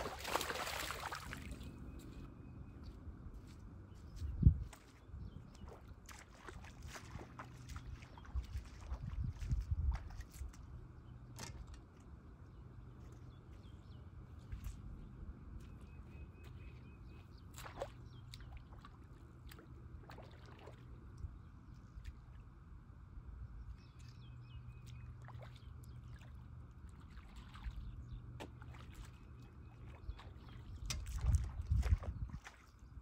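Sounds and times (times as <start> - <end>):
faint water splashes: 0.0 - 2.2, 4.6 - 12.2, 12.8 - 23.0, 23.6 - 33.0
wind rumble on microphone: 0.0 - 11.8, 28.9 - 33.0.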